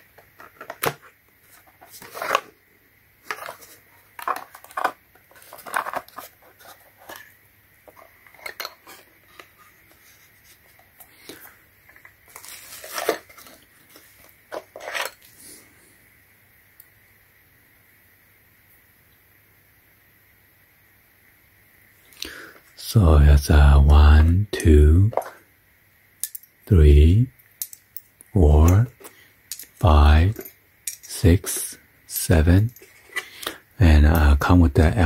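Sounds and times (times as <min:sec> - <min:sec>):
drill bits clinking and rattling: 0:29.0 - 0:31.1.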